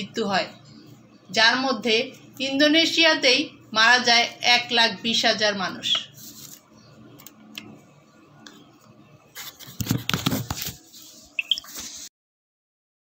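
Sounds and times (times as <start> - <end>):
short high chirp: 11.4 - 11.7.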